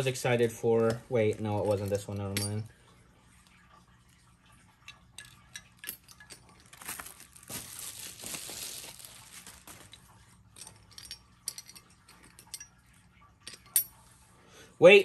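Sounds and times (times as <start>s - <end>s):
bubble wrap crinkling: 0.8s - 2.1s, 6.5s - 10.2s.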